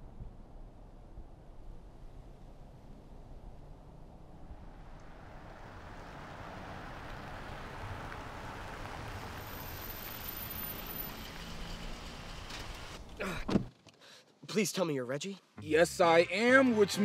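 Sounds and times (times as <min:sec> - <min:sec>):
car engine approaching: 0:01.6 - 0:13.2.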